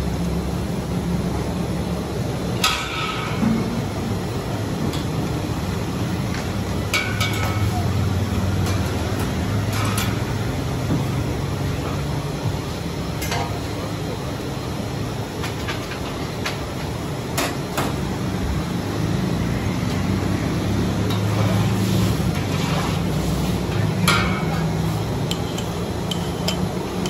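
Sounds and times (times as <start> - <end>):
ladles clinking against pots: 24.0 - 27.0.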